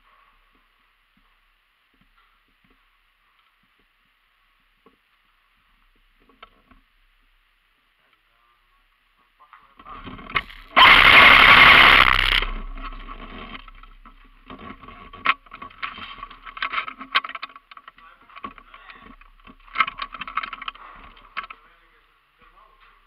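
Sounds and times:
stones clicking: 10.2s - 21.4s
loud rushing noise: 10.4s - 13.3s.

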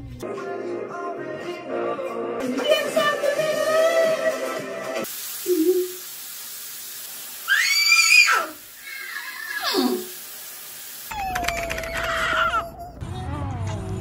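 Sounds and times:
steady hiss: 5.0s - 11.1s
high voice squeals: 7.4s - 10.1s, 11.1s - 13.0s.

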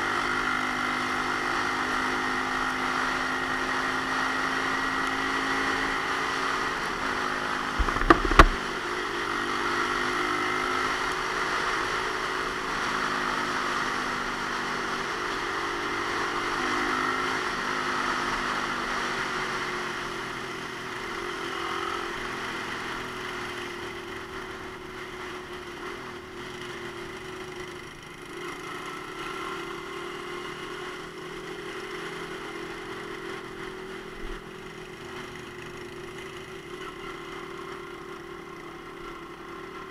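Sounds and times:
motorcycle engine cruising: 0.0s - 39.9s
sharp knocks: 7.8s - 8.6s.

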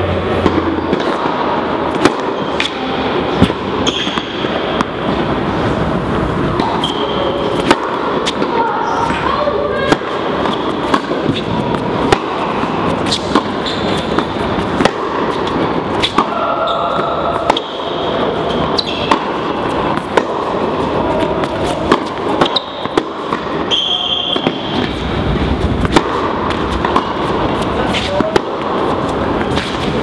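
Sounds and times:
indoor hall noise: 0.0s - 30.0s
tennis ball bouncing: 0.2s - 30.0s
tennis racket hitting ball: 0.2s - 30.0s.

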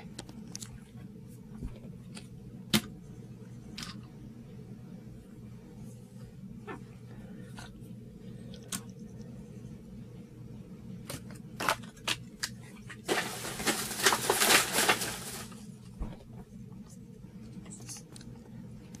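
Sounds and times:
steady low hum: 0.0s - 19.0s
rustling handling noise: 11.1s - 18.3s.

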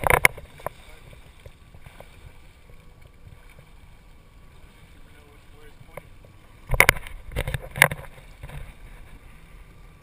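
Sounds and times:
faint splashes: 0.0s - 10.0s
small waves lapping: 0.0s - 10.0s.

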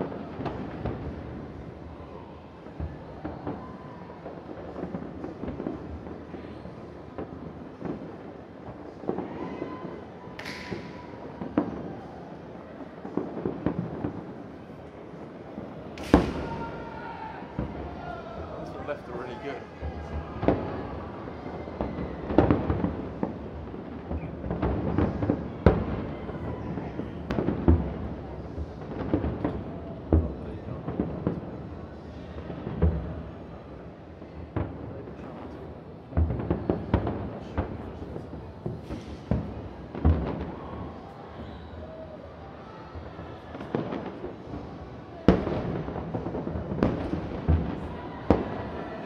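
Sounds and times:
distant fireworks booming: 0.0s - 49.0s
loud firework boom: 16.0s - 16.9s, 36.2s - 41.6s.

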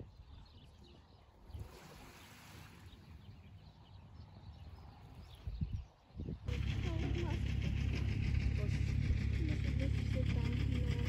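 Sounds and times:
distant birds chirping: 0.0s - 11.0s
calm sea hiss: 1.5s - 3.4s.

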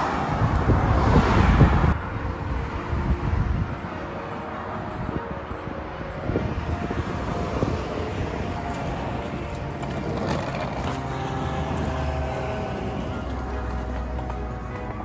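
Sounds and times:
suitcase wheels rolling on concrete: 7.4s - 15.0s.

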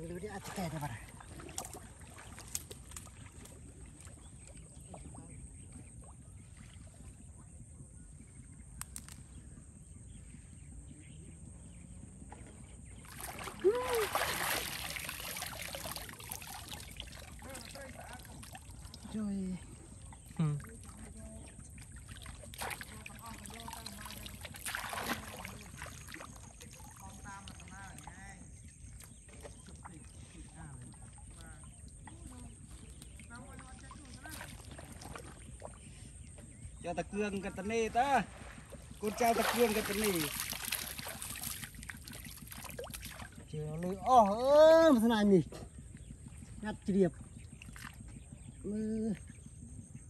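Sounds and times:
water splashing: 0.0s - 7.4s, 13.0s - 45.1s.

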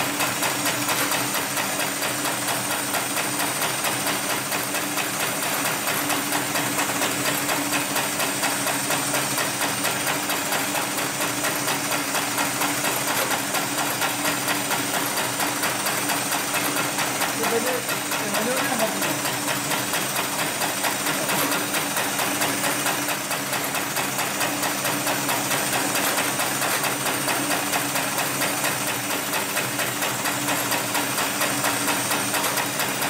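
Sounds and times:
sewing machine needle punching: 0.0s - 33.0s.

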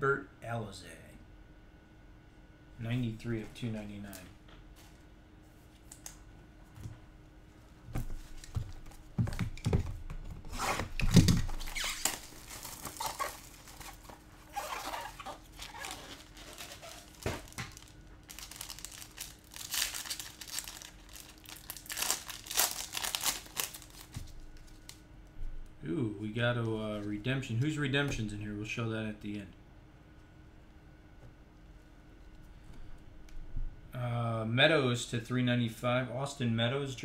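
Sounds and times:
packaging torn and crinkled: 10.8s - 25.0s.

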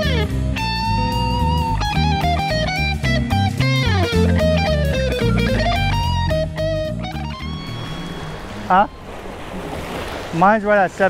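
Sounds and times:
steady bass line: 0.0s - 8.0s
sliding melody: 0.0s - 10.1s.

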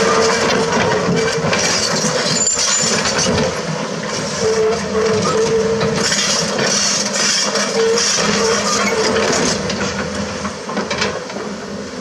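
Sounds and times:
excavator diesel engine: 0.0s - 12.0s
hydraulic whine: 4.2s - 9.8s.

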